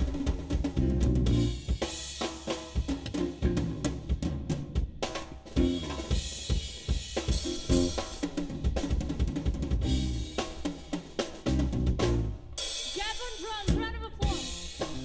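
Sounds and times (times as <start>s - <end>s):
drum kit groove: 0.0s - 15.0s
funk band playing: 0.0s - 15.0s
bass line: 0.7s - 1.8s, 3.1s - 4.3s, 5.6s - 6.2s, 7.5s - 8.1s, 9.8s - 10.4s, 11.5s - 12.6s.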